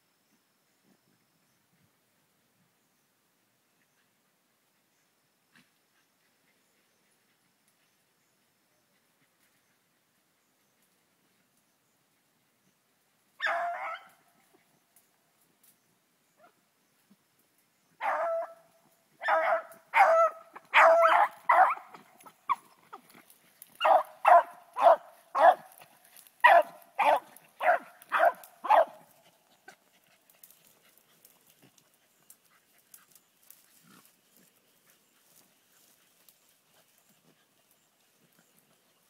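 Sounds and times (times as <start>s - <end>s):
dog barking: 13.4s - 14.2s, 18.0s - 18.6s, 19.2s - 22.6s, 23.8s - 25.7s, 26.4s - 29.1s.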